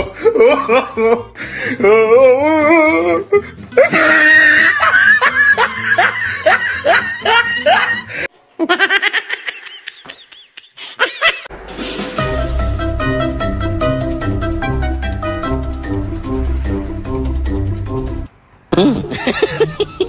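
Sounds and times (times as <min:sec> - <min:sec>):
loud repeated laughing: 0:00.0 - 0:03.0, 0:03.8 - 0:11.5, 0:18.7 - 0:20.0
background music: 0:00.0 - 0:08.3, 0:11.5 - 0:18.3
thin laugh: 0:03.8 - 0:11.5, 0:18.8 - 0:20.0.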